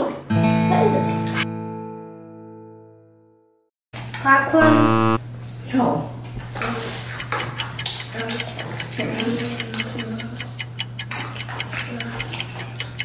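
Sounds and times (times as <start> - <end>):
clock ticking: 4.6 - 5.2.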